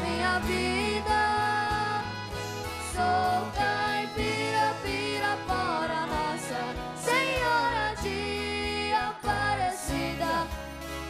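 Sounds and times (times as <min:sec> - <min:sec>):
person singing with vibrato: 0:00.0 - 0:10.8
acoustic guitars playing: 0:00.0 - 0:11.0.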